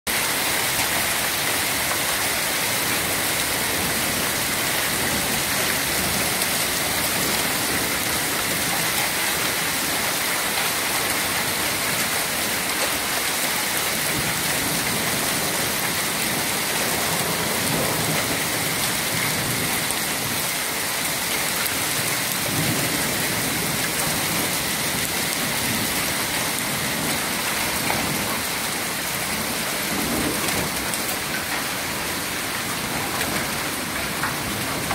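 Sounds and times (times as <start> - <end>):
hail and rain on pavement: 0.1 - 34.9.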